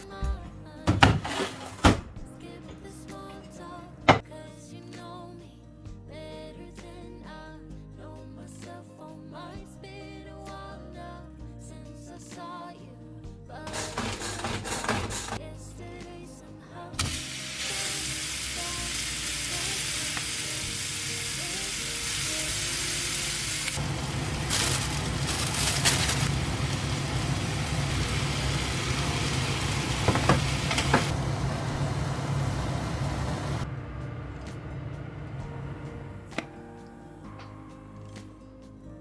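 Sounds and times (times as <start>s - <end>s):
background music: 0.0s - 39.0s
food sizzling in a pan: 17.0s - 33.6s.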